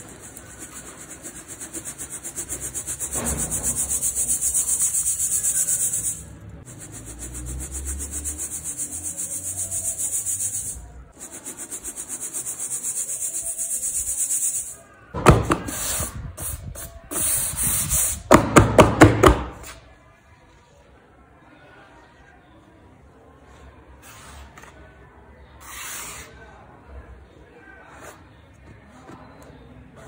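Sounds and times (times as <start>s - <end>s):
cement rasping through a mesh sieve: 0.0s - 14.8s.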